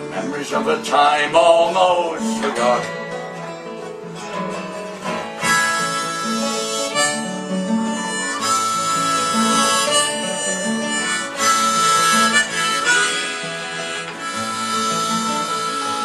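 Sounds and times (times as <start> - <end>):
guitar accompaniment: 0.0 - 16.0
harmonica playing long notes: 5.4 - 16.0.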